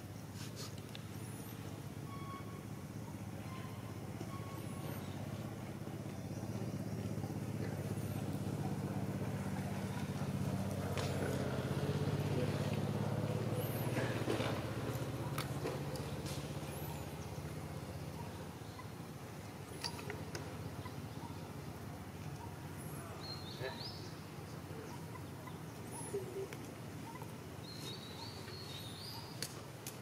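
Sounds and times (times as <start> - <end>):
vehicle engine passing by: 4.7 - 17.8.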